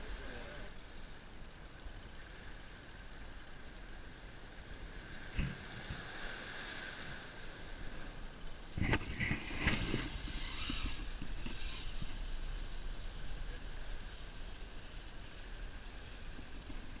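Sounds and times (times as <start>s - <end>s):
wind rumble on microphone: 8.7s - 14.0s.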